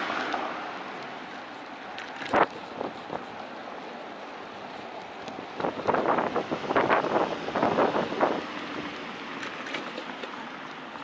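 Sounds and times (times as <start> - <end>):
wind buffeting microphone: 5.4 - 9.1.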